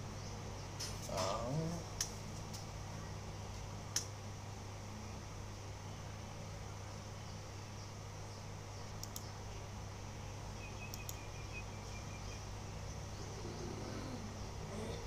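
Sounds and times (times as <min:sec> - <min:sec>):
low hum: 0:00.0 - 0:15.0
faint clicks: 0:03.9 - 0:04.1, 0:09.0 - 0:09.3, 0:10.9 - 0:11.2.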